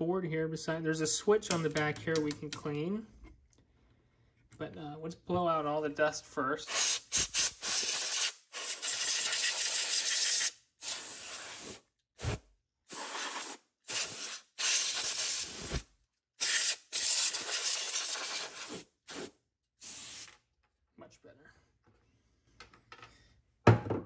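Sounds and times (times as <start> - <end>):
compressed air hissing bursts: 6.7 - 15.8, 16.4 - 20.3.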